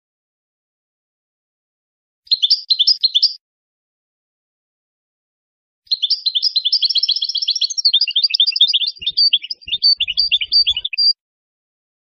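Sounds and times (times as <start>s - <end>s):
bird twittering chirps and trills: 2.3s - 3.4s, 5.9s - 11.2s.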